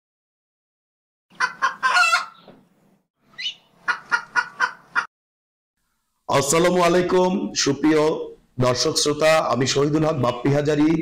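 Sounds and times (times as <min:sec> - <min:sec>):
chicken clucking: 0:01.3 - 0:02.6, 0:03.4 - 0:05.1.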